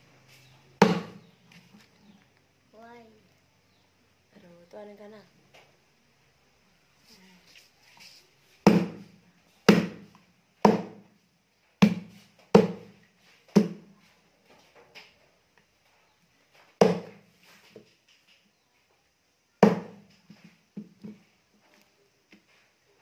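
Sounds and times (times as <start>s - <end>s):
cleaver chopping on wooden block: 0.8s - 1.3s, 8.6s - 9.1s, 9.7s - 11.0s, 11.8s - 12.9s, 13.5s - 13.8s, 16.8s - 17.2s, 19.6s - 20.0s.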